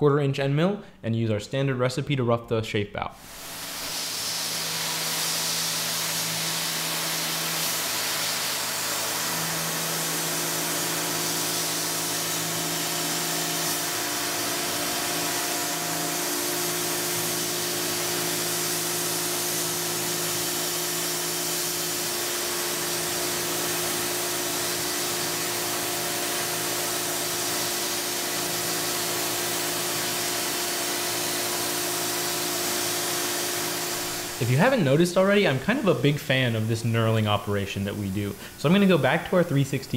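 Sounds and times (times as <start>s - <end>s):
air nozzle hissing: 3.2s - 34.8s
milling machine cutting metal: 3.3s - 34.5s.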